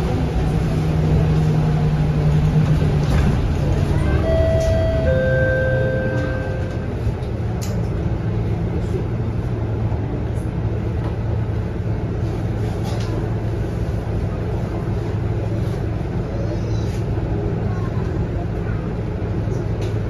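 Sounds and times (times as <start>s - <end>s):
bus diesel engine humming: 0.0s - 20.0s.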